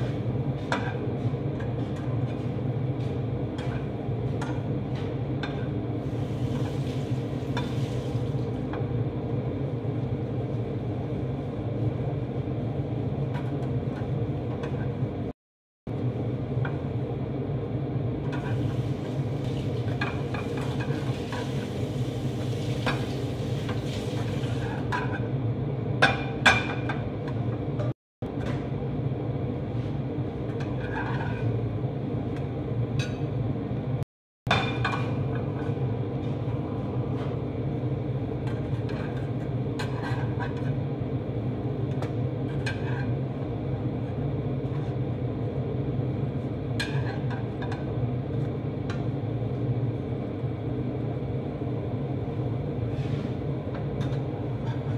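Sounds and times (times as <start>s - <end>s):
steady low hum: 0.0s - 54.9s
metal turner scraping a frying pan: 30.5s - 31.6s, 38.4s - 40.8s, 42.4s - 43.2s.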